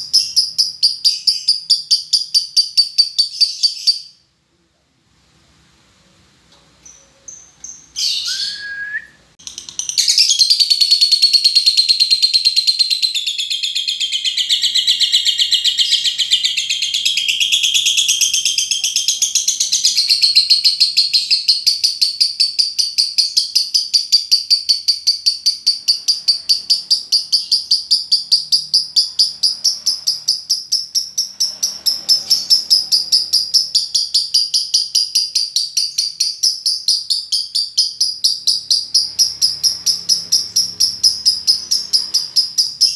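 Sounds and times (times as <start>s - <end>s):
lovebird chattering: 0.0s - 4.2s, 9.4s - 42.9s
short high bird calls: 8.0s - 9.1s.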